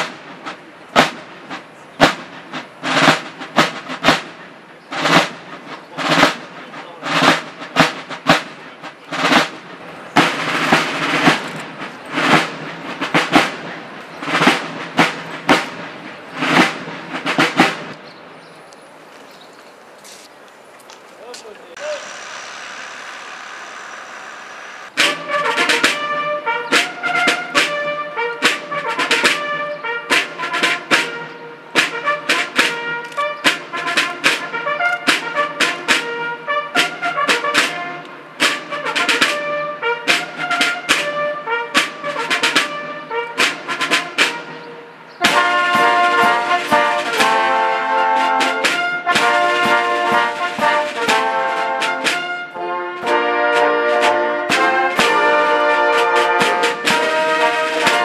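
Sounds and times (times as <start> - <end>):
military brass band playing march: 0.0 - 18.0, 24.9 - 58.0
sharp percussion strokes: 21.7 - 31.2.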